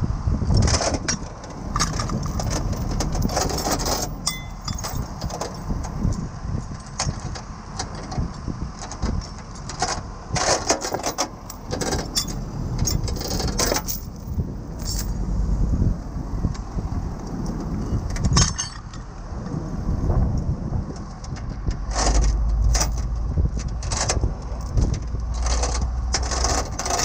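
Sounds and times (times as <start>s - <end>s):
steady low rumble: 0.0s - 27.0s
chain links clinking: 1.4s - 6.0s, 9.2s - 15.7s, 21.9s - 23.2s, 23.8s - 27.0s.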